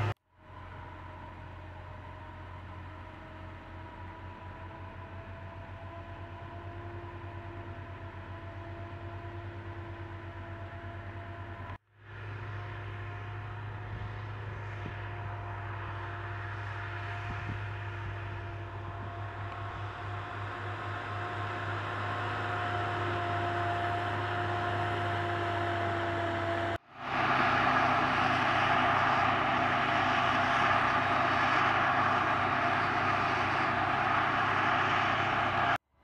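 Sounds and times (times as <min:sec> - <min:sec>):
harvester machine drone: 0:00.0 - 0:35.8
rushing harvesting noise: 0:12.1 - 0:35.8.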